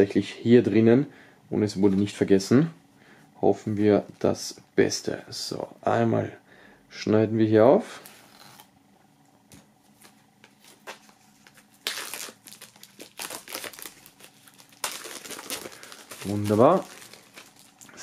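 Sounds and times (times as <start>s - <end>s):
plastic film crinkling: 10.0s - 18.0s.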